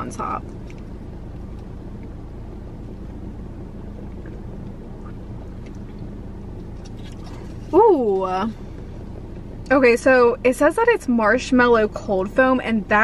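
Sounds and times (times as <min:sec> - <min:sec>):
car engine rumble: 0:00.0 - 0:13.0.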